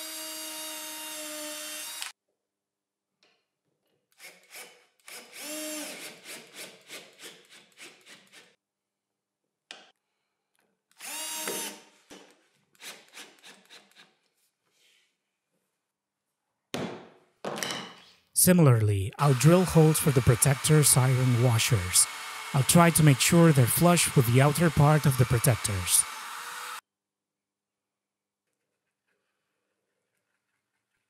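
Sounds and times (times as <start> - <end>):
cordless drill whirring: 0.0 - 2.1, 4.2 - 6.2, 10.9 - 11.9, 19.2 - 26.8.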